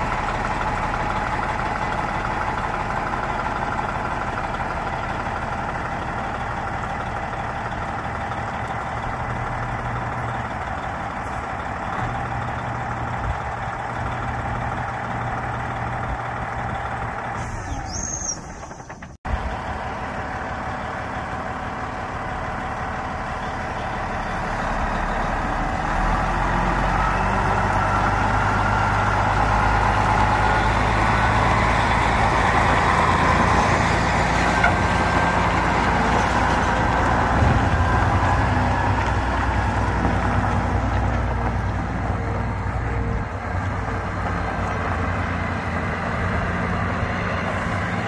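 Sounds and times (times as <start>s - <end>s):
truck diesel engine running: 0.0s - 48.0s.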